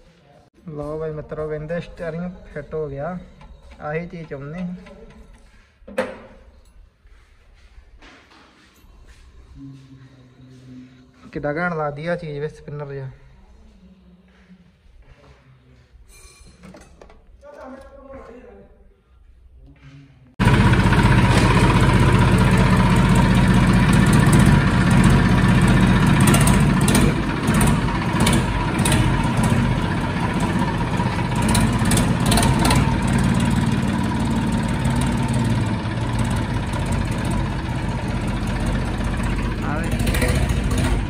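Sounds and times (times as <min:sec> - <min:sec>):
vehicle engine running: 0:20.4 - 0:41.0.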